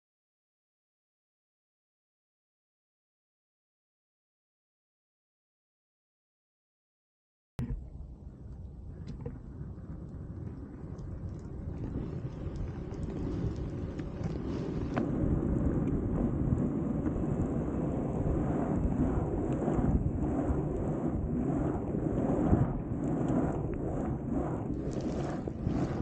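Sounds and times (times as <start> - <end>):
wind buffeting microphone: 7.6 - 26.0
longboard wheels rolling on asphalt: 8.6 - 26.0.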